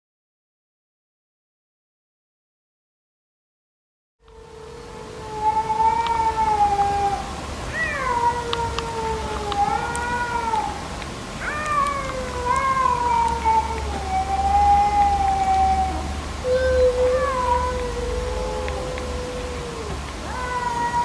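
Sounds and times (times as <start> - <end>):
cats yowling: 4.2 - 21.0.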